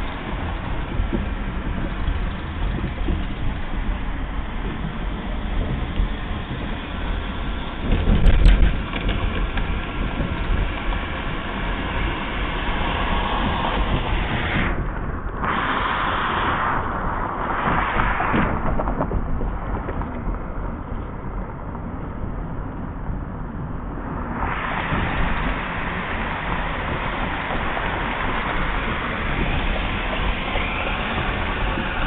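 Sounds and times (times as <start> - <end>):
car road rumble: 0.0 - 32.0
rushing hiss: 11.2 - 20.3, 24.0 - 32.0.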